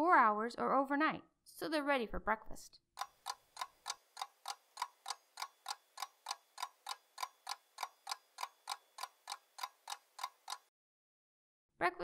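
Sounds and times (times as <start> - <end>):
clock ticking: 3.0 - 10.7.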